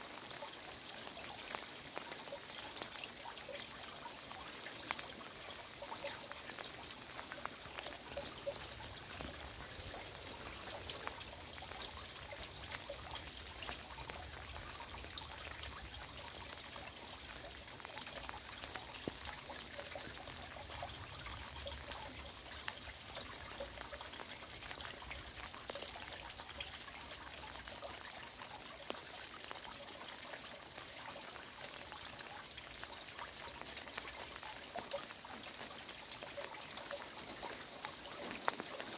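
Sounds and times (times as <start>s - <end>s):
close drips and splashes: 0.0s - 38.9s
heavy rain falling: 36.2s - 38.9s.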